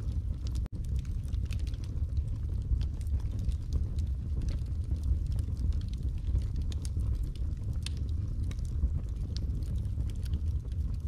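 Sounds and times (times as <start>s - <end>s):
burning wood crackling and popping: 0.0s - 11.0s
low rumble of flames: 0.0s - 11.0s.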